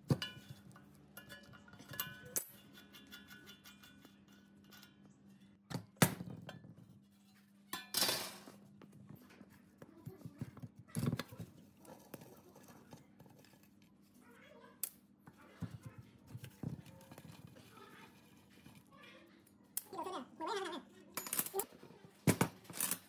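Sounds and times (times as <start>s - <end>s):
metal clinks and knocks: 0.1s - 5.2s.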